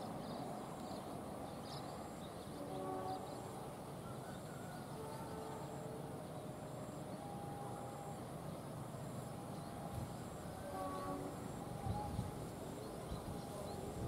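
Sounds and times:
distant diesel locomotives rumbling: 0.0s - 14.0s.

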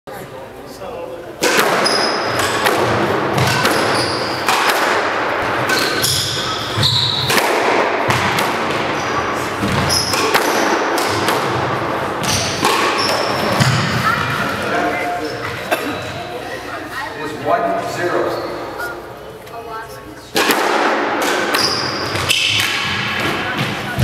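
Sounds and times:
squash ball hitting rackets and walls: 1.4s - 14.8s, 20.3s - 24.0s
sneakers squeaking on floor: 1.7s - 2.6s, 3.4s - 4.6s, 5.4s - 7.4s, 8.1s - 11.2s, 12.2s - 17.2s, 17.9s - 19.1s, 21.3s - 24.0s.

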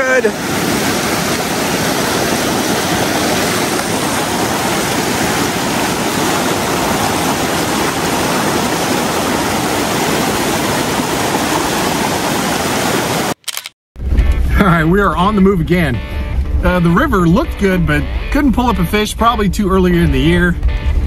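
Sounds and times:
water rushing over rocks: 0.0s - 13.4s.

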